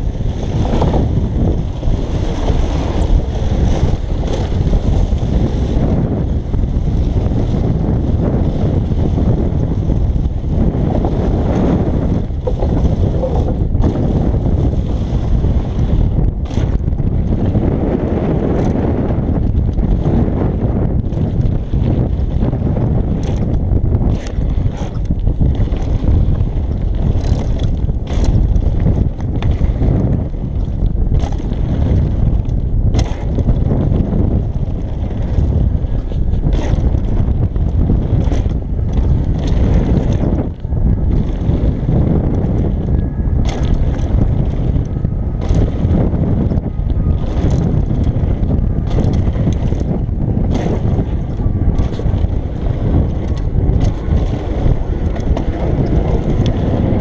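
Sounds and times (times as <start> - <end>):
bike rattling over bumps: 0.0 - 57.0
bike tyres on gravel: 0.0 - 57.0
wind buffeting microphone: 0.0 - 57.0.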